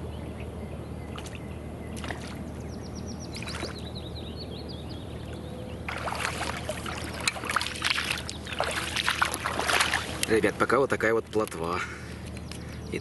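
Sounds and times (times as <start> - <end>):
small bird chirping: 0.2 - 9.3
sloshing footsteps in water: 1.1 - 2.5, 3.4 - 3.9, 5.8 - 10.6.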